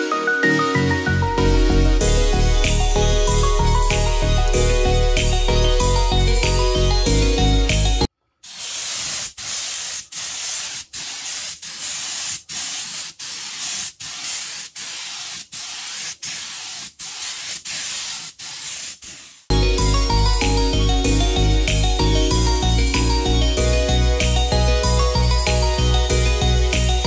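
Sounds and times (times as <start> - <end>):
background music: 0.0 - 8.1, 19.5 - 27.0
spray gun hissing: 8.4 - 19.5.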